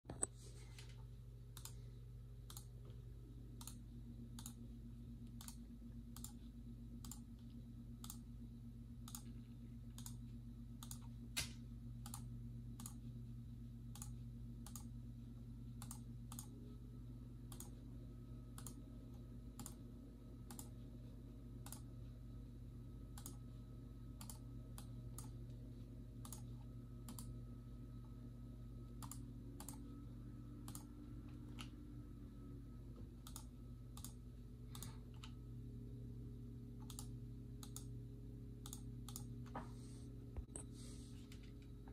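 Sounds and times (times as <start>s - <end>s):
computer mouse and keys clicking: 0.1s - 8.3s, 9.0s - 13.1s, 13.9s - 15.0s, 15.8s - 16.6s, 17.4s - 17.8s, 18.5s - 20.9s, 21.6s - 21.9s, 23.1s - 23.5s, 24.2s - 25.6s, 26.2s - 27.4s, 28.9s - 29.9s, 30.6s - 31.8s, 33.0s - 35.4s, 36.8s - 37.9s, 38.6s - 39.7s, 40.4s - 41.9s
steady low hum: 0.1s - 41.9s.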